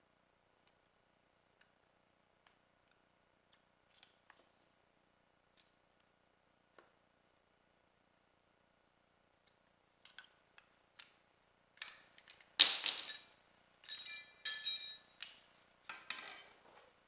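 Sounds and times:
metal clinks and knocks: 11.8 - 16.7.

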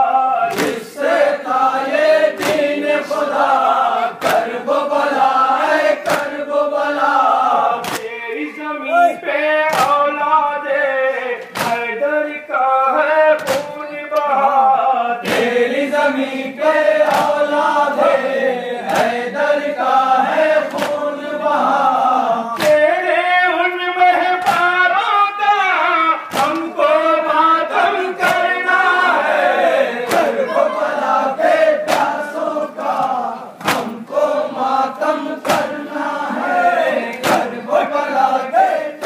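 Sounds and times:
men chanting in unison: 0.0 - 39.0
hands slapping chests: 0.5 - 0.9, 2.4 - 2.8, 4.2 - 4.6, 6.0 - 6.4, 7.8 - 8.1, 9.7 - 10.0, 11.4 - 11.9, 13.4 - 13.8, 17.0 - 17.5, 20.6 - 21.0, 22.6 - 22.8, 24.4 - 24.7, 26.3 - 26.7, 28.2 - 28.5, 30.0 - 30.4, 31.8 - 32.3, 33.6 - 34.0, 35.4 - 35.8, 37.1 - 37.5.

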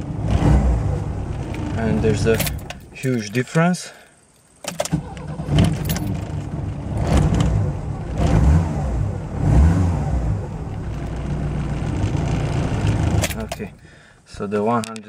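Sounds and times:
car engine revving: 0.0 - 2.9, 4.9 - 13.6.

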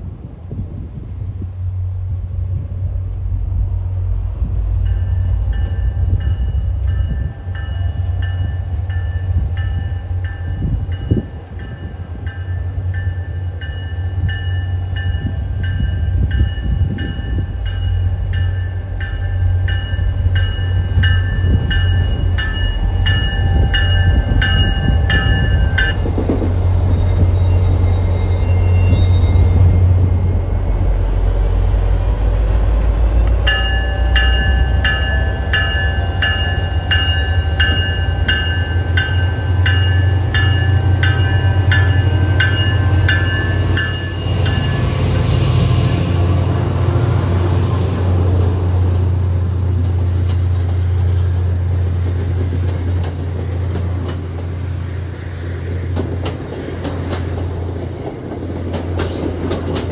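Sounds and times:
train rumbling by: 0.0 - 59.9
bell ringing: 4.9 - 26.0, 33.5 - 45.0.

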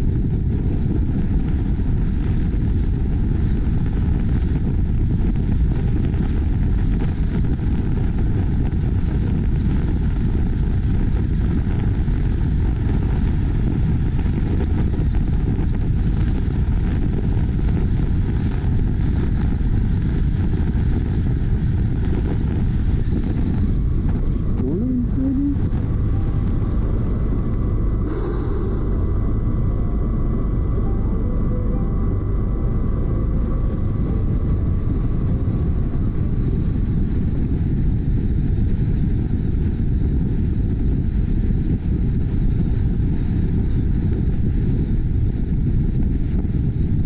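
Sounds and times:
wind rumble: 0.0 - 47.0
road noise: 22.8 - 39.9.

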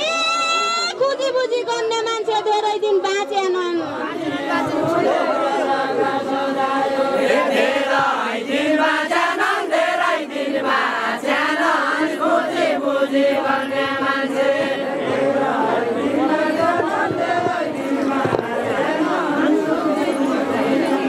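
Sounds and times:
group singing in unison: 4.1 - 21.0.

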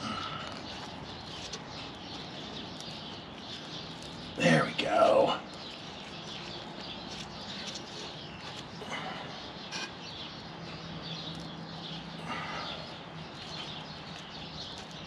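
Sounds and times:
birds chirping and singing: 0.0 - 15.0.

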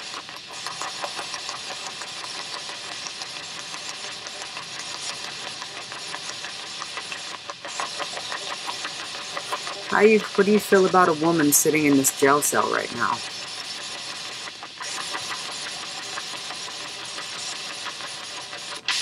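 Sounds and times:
radio static hiss: 8.6 - 13.4.

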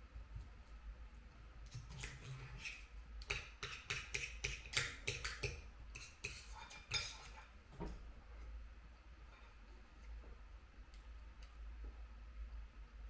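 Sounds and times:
knife and fork scraping plate: 1.7 - 7.4.

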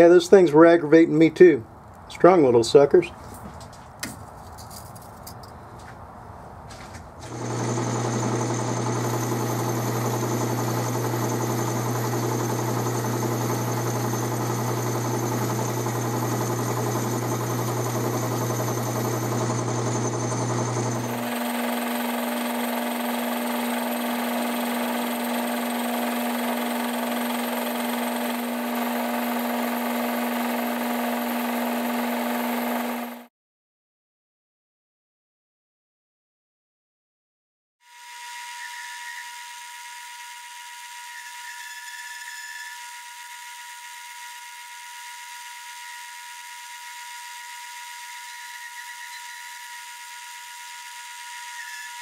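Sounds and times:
lathe humming: 7.3 - 33.3.

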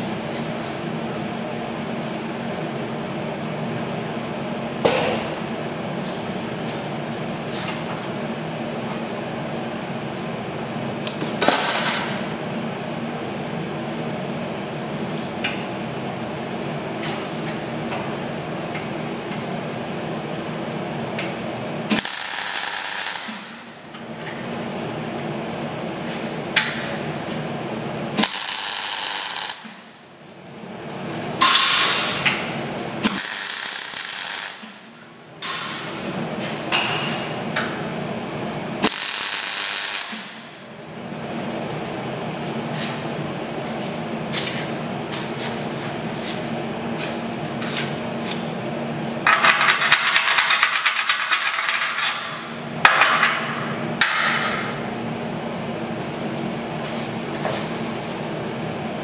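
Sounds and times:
steady background hum: 0.0 - 59.0
welder arc hissing: 21.9 - 23.6, 28.2 - 29.8, 33.0 - 34.8, 38.8 - 40.4.

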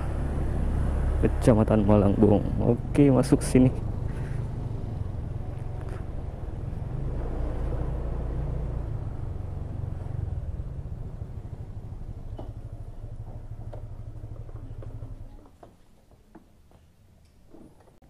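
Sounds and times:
wind and road noise: 0.0 - 15.6
motorcycle engine: 0.0 - 15.7.

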